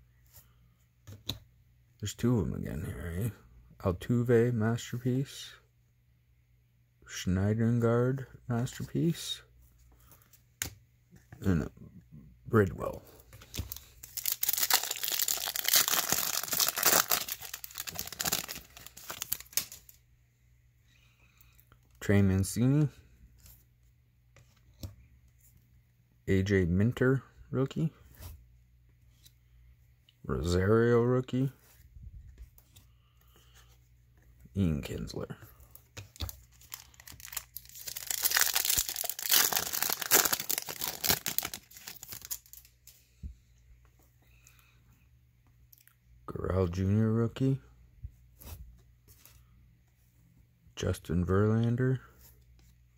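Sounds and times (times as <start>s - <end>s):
foil wrapper crinkling: 13.5s - 20.0s, 36.2s - 42.8s.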